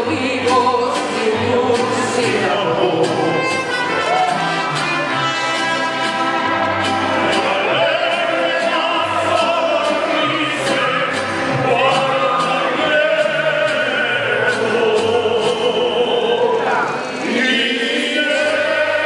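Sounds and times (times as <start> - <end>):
bass guitar line: 0.0 - 17.3
mariachi band playing: 0.0 - 19.0
violins: 3.2 - 14.8
trumpets: 3.2 - 15.0
people singing together: 7.2 - 19.0.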